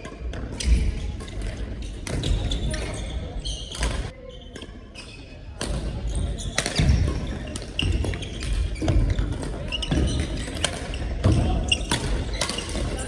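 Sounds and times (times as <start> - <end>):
shoe squeaks: 0.6 - 12.8
rackets striking shuttlecock: 5.6 - 13.0.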